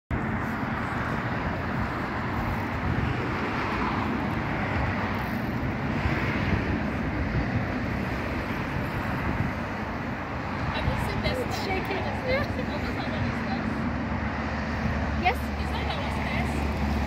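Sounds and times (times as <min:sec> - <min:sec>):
wind buffeting microphone: 0:00.1 - 0:17.0.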